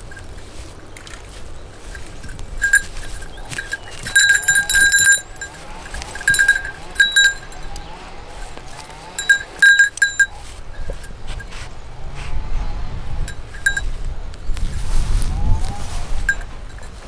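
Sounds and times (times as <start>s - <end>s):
small bell jingling: 0.0s - 11.5s, 13.3s - 14.0s, 16.2s - 17.0s.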